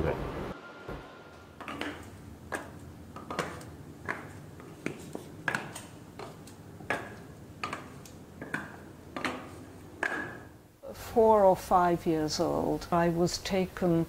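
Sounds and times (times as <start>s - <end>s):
wooden clogs clacking on hard floor: 1.6s - 10.5s.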